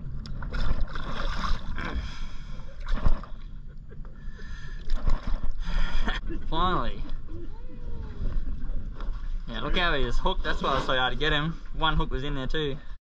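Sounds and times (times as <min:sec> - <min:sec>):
fish thrashing water splashing: 0:00.4 - 0:02.2.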